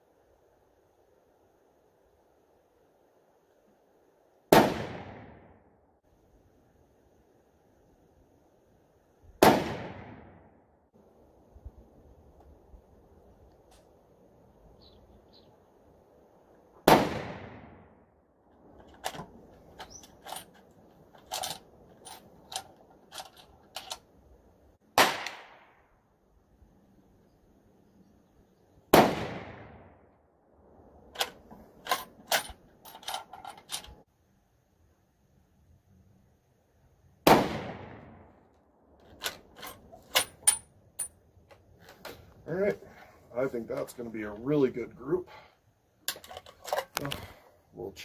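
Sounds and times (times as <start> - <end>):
loud gunshot: 4.5 - 5.6, 9.4 - 10.5, 16.8 - 17.9, 25.0 - 25.8, 28.9 - 29.9, 37.2 - 38.2
rifle shot with echo: 4.5 - 5.6, 9.4 - 10.5, 16.8 - 18.0, 25.0 - 25.8, 28.9 - 30.0, 37.2 - 38.3.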